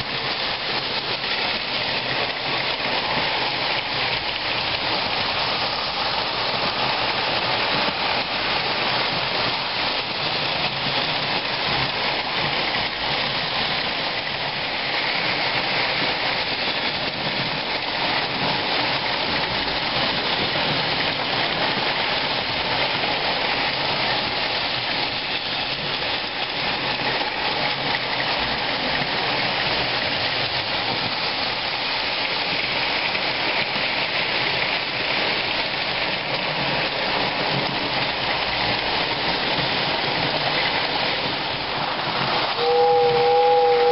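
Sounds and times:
toy trains whirring and clattering: 0.0s - 43.9s.

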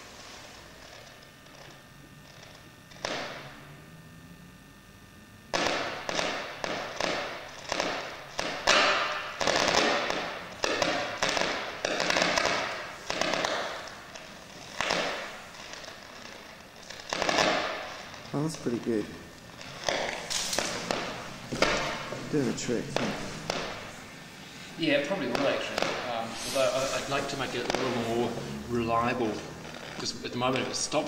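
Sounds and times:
sharp crackling scrapes: 10.8s - 31.0s.

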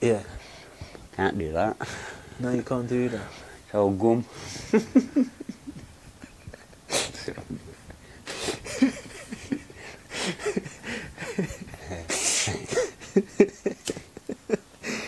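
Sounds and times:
man laughing wheezily: 4.3s - 15.0s.

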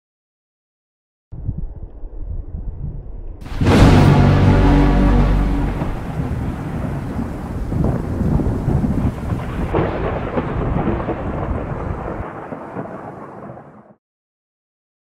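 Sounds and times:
rolling thunder: 2.3s - 14.0s
rain hiss: 3.4s - 9.8s.

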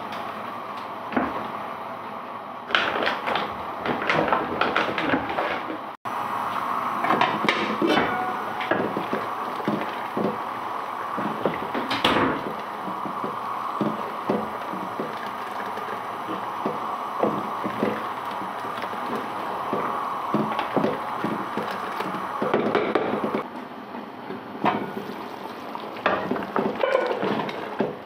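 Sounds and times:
curry boiling and bubbling: 0.1s - 28.0s
ladle stirring pot: 7.0s - 23.4s, 24.7s - 28.0s.

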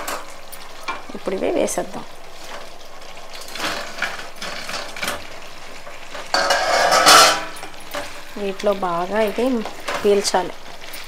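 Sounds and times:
food sizzling in pan: 0.0s - 11.0s
spatula clattering and scraping pan: 3.3s - 8.2s, 9.3s - 10.3s.

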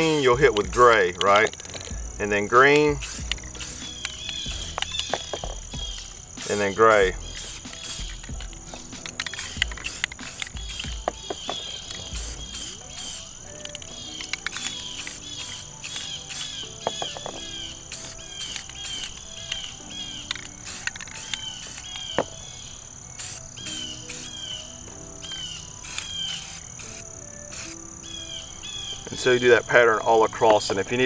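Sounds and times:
insects chirping: 0.0s - 31.0s
soft background music: 0.0s - 31.0s
sharp clicks: 0.1s - 2.0s, 2.6s - 22.3s, 25.8s - 27.0s.

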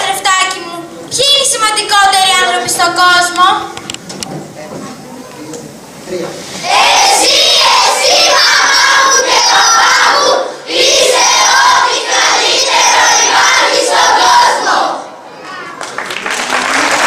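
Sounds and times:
children calling out in unison: 6.7s - 15.8s.

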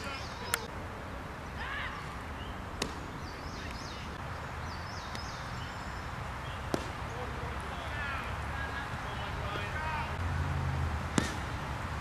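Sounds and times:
outdoor background: 0.0s - 12.0s
baseball smacking into mitt: 2.8s - 3.1s, 6.7s - 7.0s, 11.1s - 11.6s.

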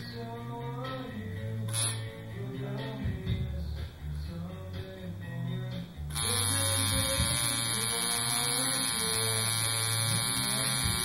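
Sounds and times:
guitar music: 0.0s - 11.0s
tattoo machine buzzing: 1.7s - 2.2s, 6.1s - 11.0s.

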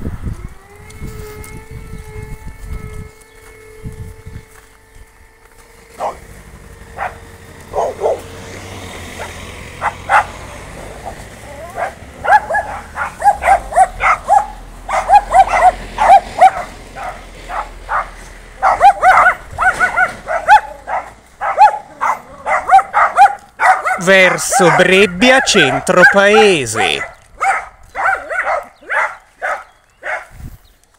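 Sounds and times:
dog barking and yipping: 5.9s - 30.4s.

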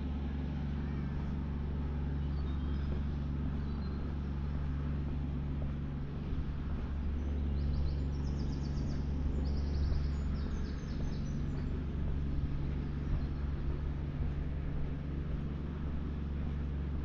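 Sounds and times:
distant city traffic rumble: 0.0s - 17.0s
songbird singing: 2.1s - 4.3s, 7.0s - 13.9s.

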